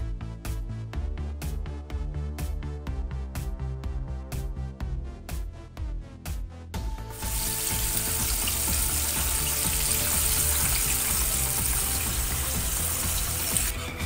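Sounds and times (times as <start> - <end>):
chicken frying in hot oil: 7.1 - 14.0.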